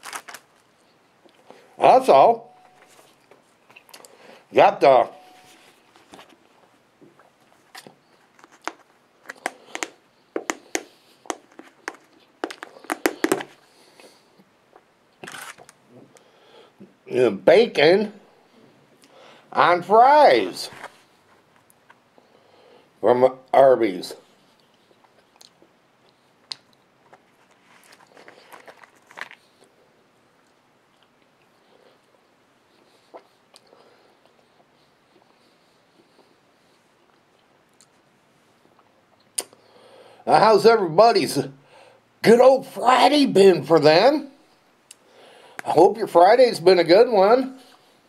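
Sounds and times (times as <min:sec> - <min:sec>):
food packaging crinkling: 0:00.0 - 0:01.0, 0:07.6 - 0:13.6, 0:15.2 - 0:15.8, 0:26.5 - 0:29.7
person chewing fries: 0:24.6 - 0:29.8.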